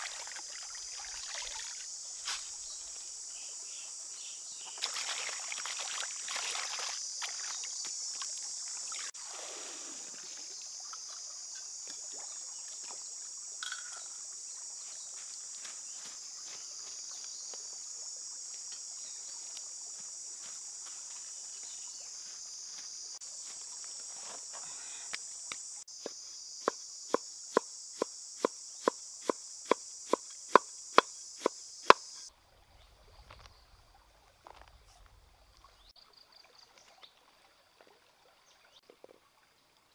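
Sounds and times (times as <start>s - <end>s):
water splashing over produce: 0.0s - 1.9s, 4.7s - 11.0s
insect chorus: 0.0s - 37.5s.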